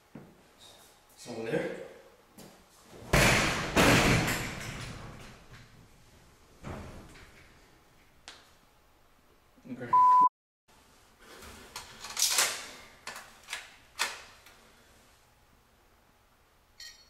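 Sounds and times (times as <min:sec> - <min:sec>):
loud steady bleep tone: 0:09.9 - 0:10.3.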